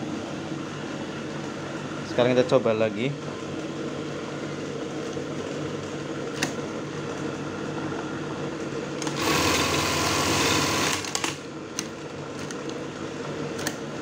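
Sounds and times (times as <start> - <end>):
machine motor humming: 5.8 - 12.0
fast machine stitching: 9.0 - 11.4.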